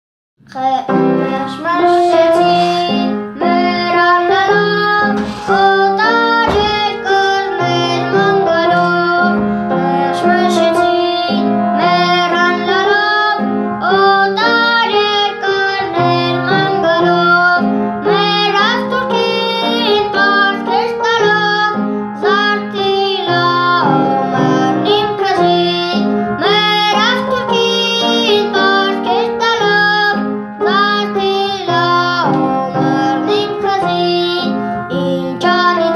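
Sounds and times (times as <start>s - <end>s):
boy singing: 0.4s - 35.9s
instrumental held chords: 0.4s - 35.9s.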